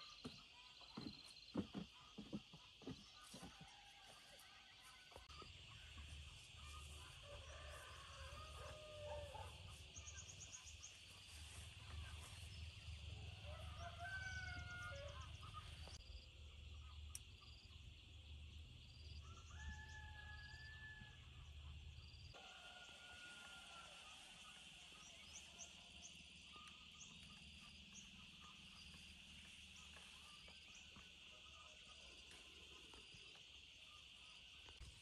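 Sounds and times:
distant roosters crowing: 6.7s - 10.1s, 13.0s - 16.0s, 19.2s - 21.6s, 22.3s - 25.4s.

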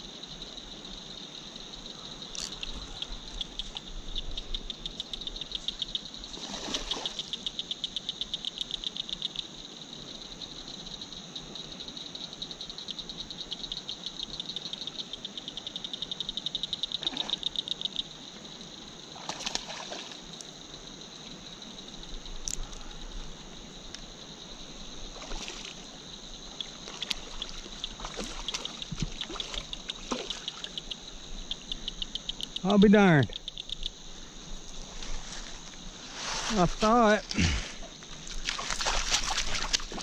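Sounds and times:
frogs and insects high hum: 0.0s - 40.0s
rapid clicking frog calls: 1.8s - 9.6s, 12.0s - 18.2s, 25.2s - 34.9s.

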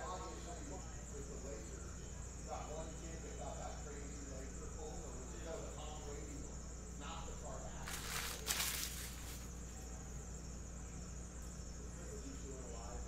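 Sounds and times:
trading cards rustling: 7.8s - 9.5s.

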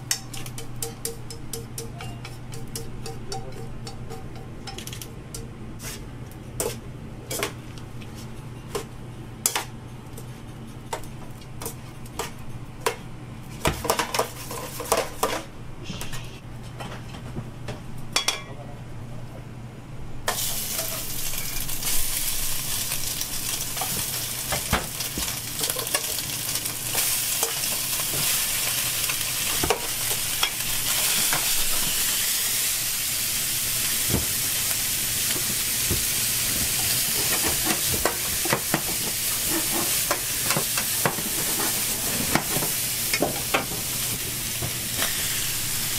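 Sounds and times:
vegetables sizzling in pan: 20.3s - 45.9s
utensils scraping steel pans: 36.8s - 42.8s.

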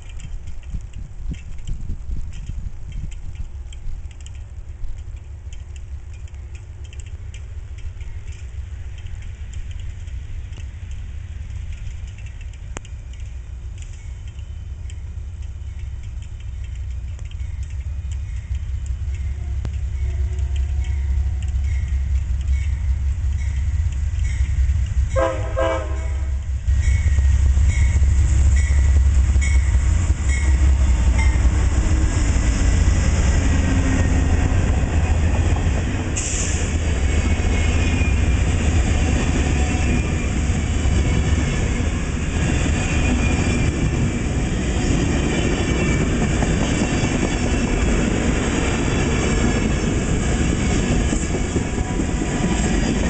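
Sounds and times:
locomotives rumbling past: 0.0s - 53.0s
train horn chord: 25.1s - 26.5s.

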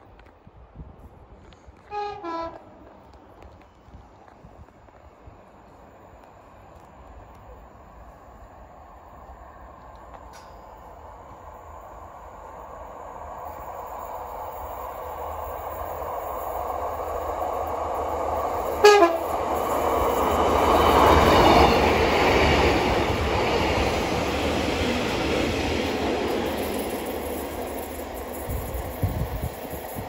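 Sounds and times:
train engine and wheels passing: 0.0s - 30.0s
train horn blast: 1.9s - 2.9s, 18.8s - 19.3s.

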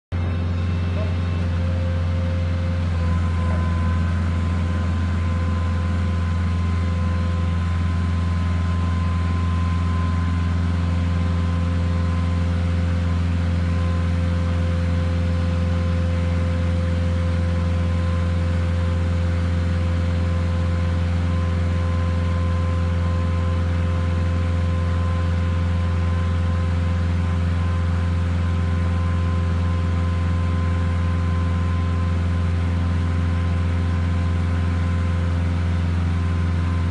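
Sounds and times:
thin steady whine: 0.1s - 12.6s
hydraulic power unit humming: 0.1s - 36.9s.

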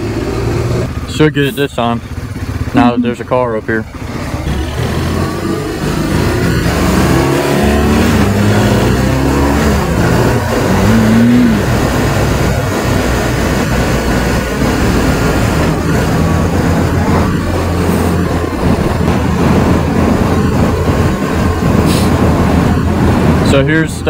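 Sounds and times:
motorcycle engine accelerating: 0.0s - 23.8s
wind rush: 7.9s - 23.9s.

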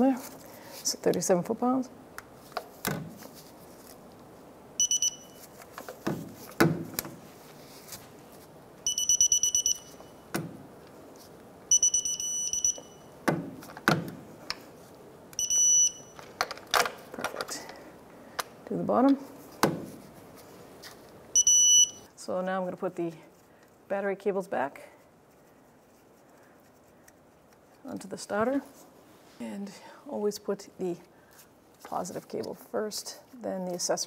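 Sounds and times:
torque wrench beeping: 4.8s - 5.4s, 8.8s - 10.1s, 11.7s - 13.1s, 15.4s - 16.2s.

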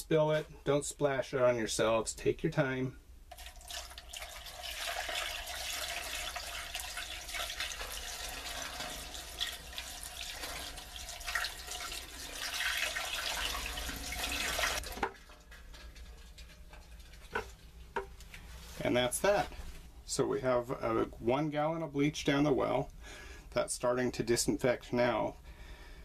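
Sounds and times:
liquid pouring into funnel: 3.3s - 18.5s.

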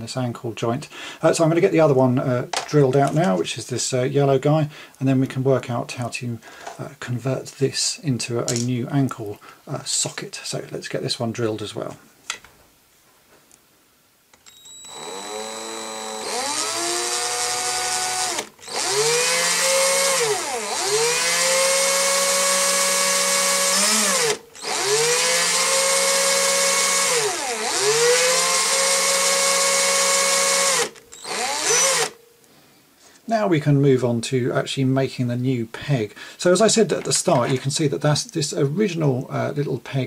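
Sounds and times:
electric drill whining: 14.4s - 32.2s.

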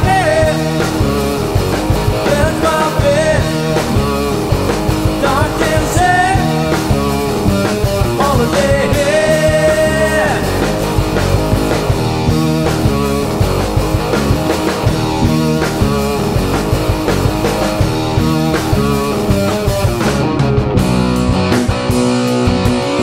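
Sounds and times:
bass guitar: 0.0s - 23.0s
drums: 0.0s - 23.0s
electric guitar: 0.0s - 23.0s.

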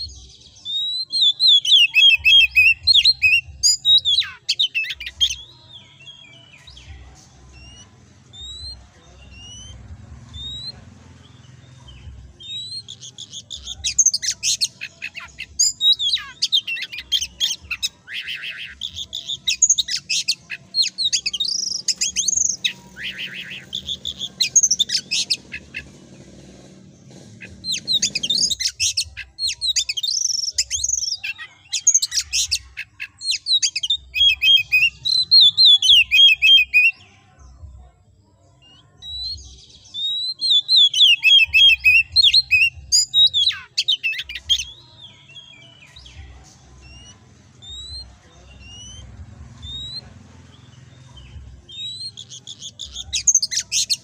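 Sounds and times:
bird singing whistled phrases: 0.6s - 5.5s, 27.7s - 37.0s, 39.0s - 44.8s.

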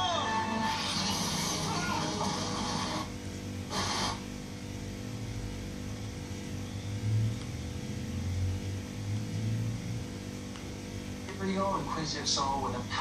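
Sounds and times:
television sound: 0.0s - 8.4s, 11.3s - 13.0s
low electrical hum: 0.0s - 13.0s.

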